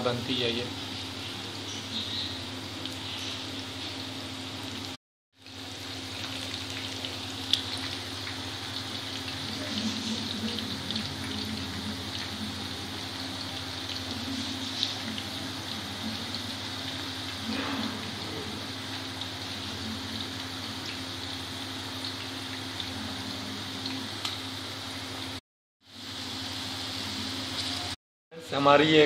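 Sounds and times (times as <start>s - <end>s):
oil sizzling and bubbling: 0.0s - 28.0s.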